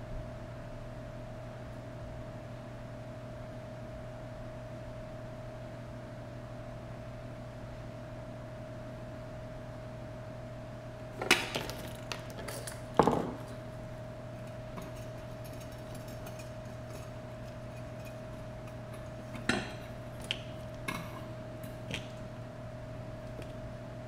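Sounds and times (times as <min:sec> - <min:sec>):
metal tools clinking on workbench: 0:11.2 - 0:13.6, 0:14.4 - 0:21.3.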